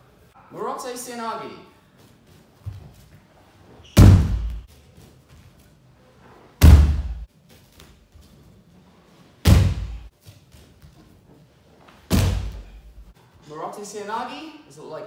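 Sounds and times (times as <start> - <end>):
body slapping onto mats: 3.9 - 4.7, 6.6 - 8.0, 9.4 - 11.0, 11.9 - 13.1.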